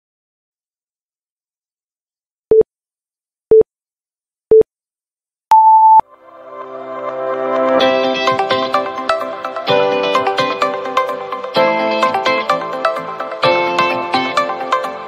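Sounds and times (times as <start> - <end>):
electronic countdown beeps: 5.5 - 6.0
music: 6.0 - 15.0.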